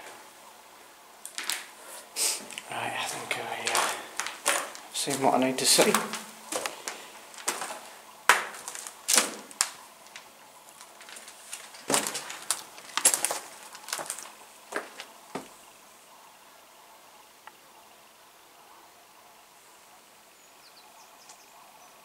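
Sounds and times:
rustling undergrowth: 0:01.2 - 0:15.8
footsteps crunching through dry twigs: 0:03.2 - 0:15.6.

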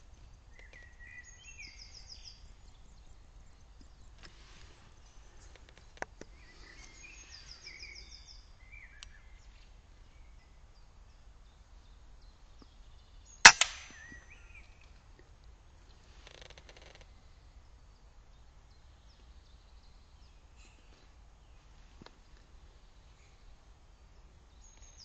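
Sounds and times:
small birds chirping: 0:00.0 - 0:15.0, 0:17.0 - 0:25.0
air rifle shot: 0:13.4 - 0:14.3.

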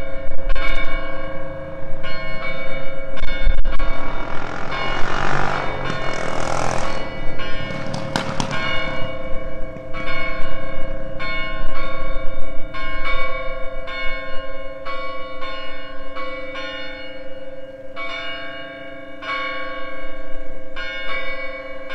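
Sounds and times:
church bells pealing: 0:00.0 - 0:21.9.

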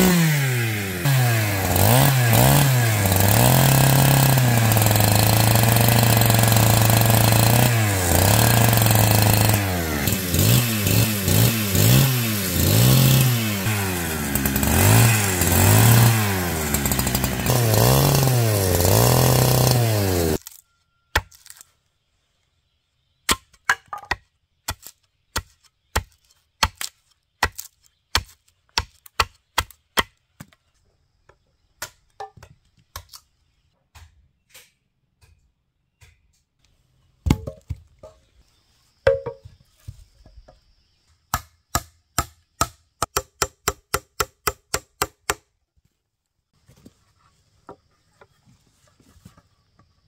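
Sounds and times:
hatchet chopping wood: 0:00.0 - 0:21.6, 0:23.3 - 0:30.6, 0:33.9 - 0:35.4, 0:36.0 - 0:36.5, 0:37.2 - 0:37.8, 0:39.1 - 0:39.4, 0:41.3 - 0:45.5.

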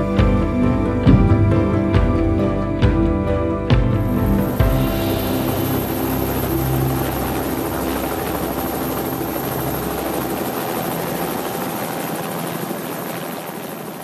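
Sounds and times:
helicopter engine and rotor: 0:04.2 - 0:14.0.

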